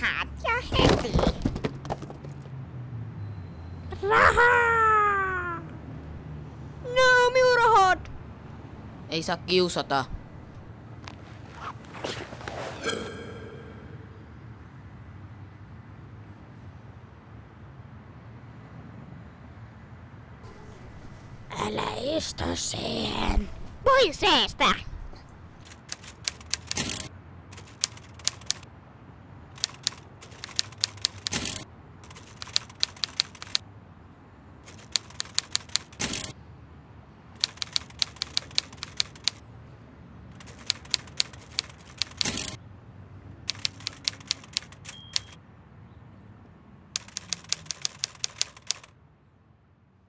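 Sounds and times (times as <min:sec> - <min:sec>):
typewriter keystrokes: 0:25.6 - 0:27.0, 0:27.6 - 0:28.6, 0:29.6 - 0:33.6, 0:34.7 - 0:36.3, 0:37.4 - 0:39.4, 0:40.4 - 0:42.6, 0:43.5 - 0:45.4, 0:47.0 - 0:48.9
typewriter bell ding: 0:44.8 - 0:45.4.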